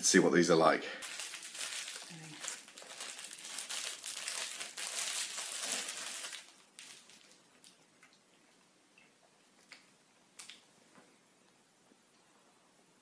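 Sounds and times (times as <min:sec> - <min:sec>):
plastic wrapper crinkling: 0:01.0 - 0:07.8.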